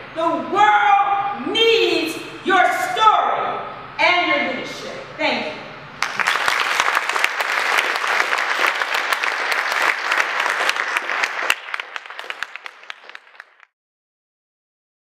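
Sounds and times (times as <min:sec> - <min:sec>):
audience applauding: 0:06.0 - 0:13.7.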